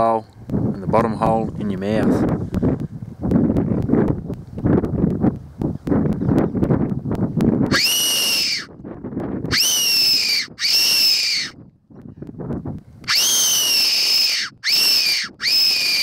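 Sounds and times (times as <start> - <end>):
shrill whistle calls: 7.7 - 8.7, 9.5 - 11.6, 13.1 - 16.0.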